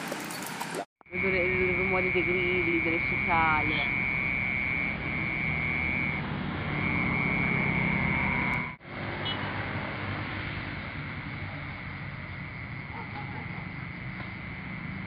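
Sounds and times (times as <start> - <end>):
crickets and cicadas trilling: 1.2 - 8.8, 11.0 - 15.0.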